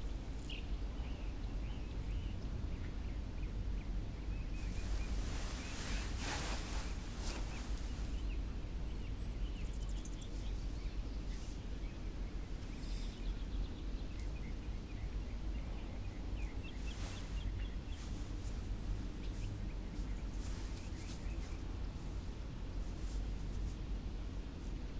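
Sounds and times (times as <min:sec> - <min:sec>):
soft rustles: 0:00.0 - 0:00.6, 0:04.6 - 0:09.2, 0:10.0 - 0:13.2, 0:16.6 - 0:23.9
low ambient rumble: 0:00.0 - 0:24.9
faint chirps: 0:16.5 - 0:18.6.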